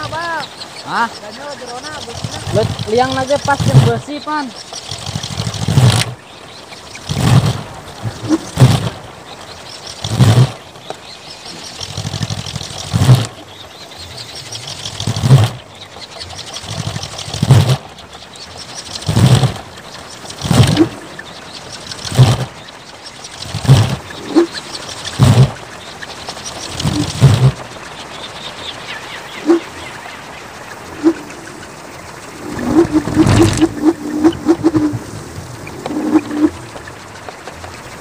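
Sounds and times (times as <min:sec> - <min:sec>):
wind rushing: 0:05.0 - 0:10.6, 0:30.7 - 0:37.1
deep whooshing boom of propeller: 0:07.0 - 0:09.1, 0:32.1 - 0:36.8.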